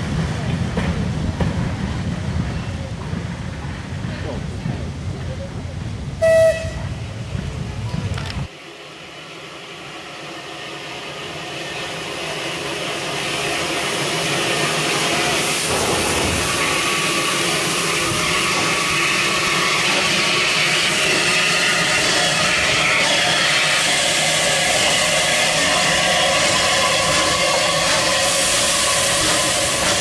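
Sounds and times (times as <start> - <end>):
steam train rumbling and hissing: 0.0 - 30.0
loud whistle blast: 6.2 - 6.8.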